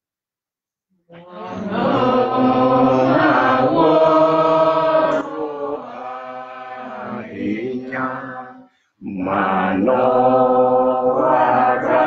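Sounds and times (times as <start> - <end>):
man singing a hymn: 7.0 - 10.2.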